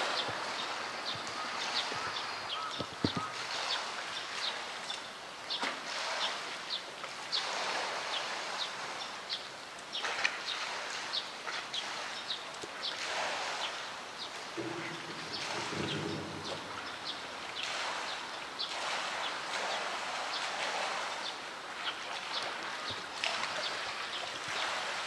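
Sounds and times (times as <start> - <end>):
heavy rain: 0.0 - 3.4, 14.6 - 19.5
water sloshing: 9.9 - 25.0.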